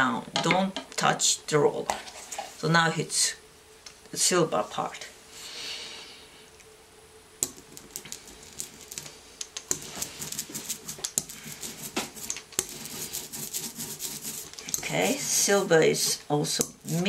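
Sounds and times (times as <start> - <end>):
roller rolling sticky ink: 7.8 - 17.0.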